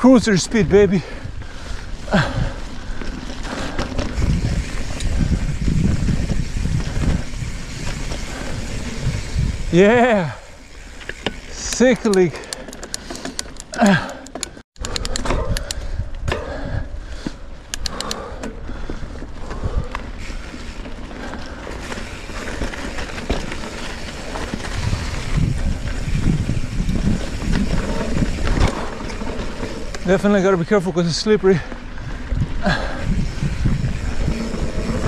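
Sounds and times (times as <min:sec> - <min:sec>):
bike tyres on muddy trail: 0:00.0 - 0:14.6, 0:15.2 - 0:35.0
bike rattling: 0:00.0 - 0:35.0
sharp clicks: 0:11.0 - 0:15.8, 0:17.7 - 0:18.3.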